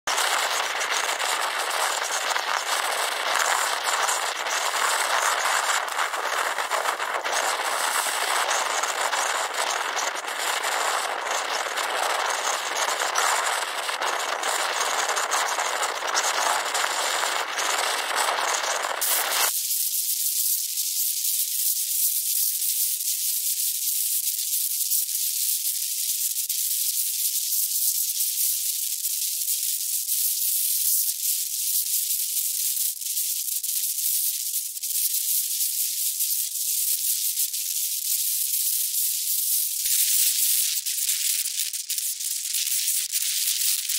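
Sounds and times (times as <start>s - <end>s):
wind blowing across microphone: 0.1s - 19.5s.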